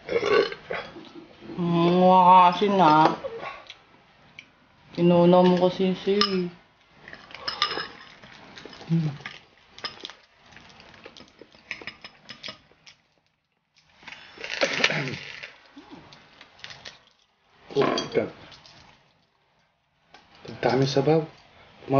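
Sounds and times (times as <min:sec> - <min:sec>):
chewing clicks and crackles: 0:06.8 - 0:17.3, 0:18.5 - 0:19.3.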